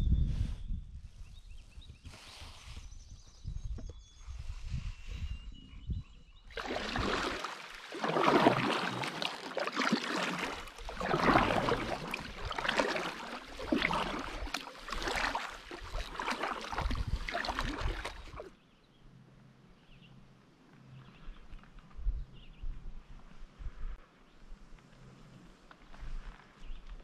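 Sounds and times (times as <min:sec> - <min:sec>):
paddle splashing through water: 0:06.5 - 0:18.5.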